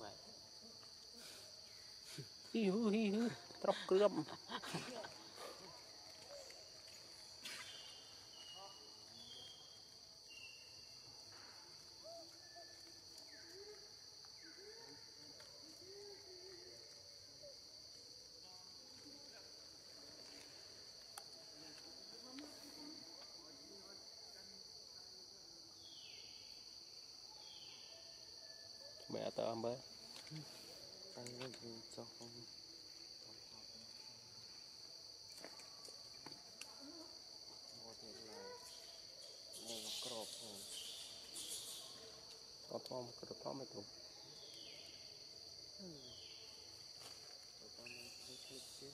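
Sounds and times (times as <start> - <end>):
insects droning: 0.0 - 48.9
high-pitched insect drone: 37.8 - 42.4, 47.7 - 48.9
short pitched calls: 39.5 - 42.0.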